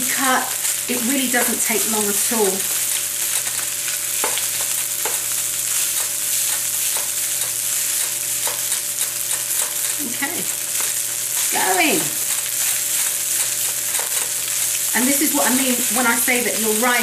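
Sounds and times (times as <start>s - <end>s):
rice sizzling in a wok: 0.0s - 17.0s.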